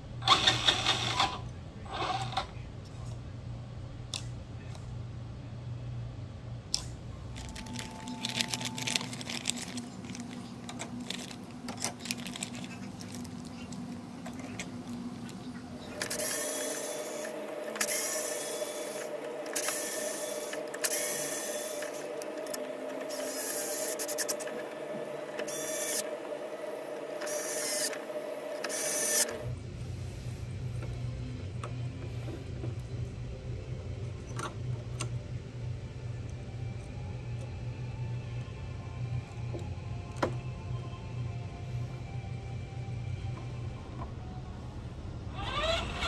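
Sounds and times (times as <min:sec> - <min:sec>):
electric screwdriver whirring: 0:25.4 - 0:26.1, 0:27.2 - 0:28.0, 0:28.6 - 0:29.3.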